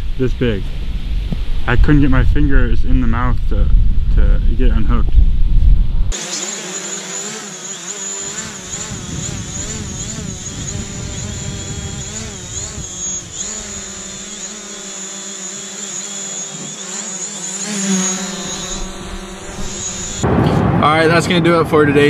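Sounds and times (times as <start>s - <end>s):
drone propellers whining: 6.1s - 20.3s.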